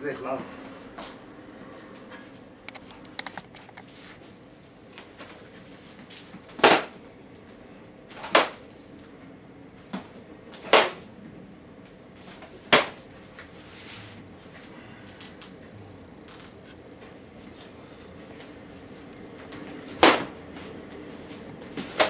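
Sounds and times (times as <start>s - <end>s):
wooden swords clacking: 10.7s - 11.0s.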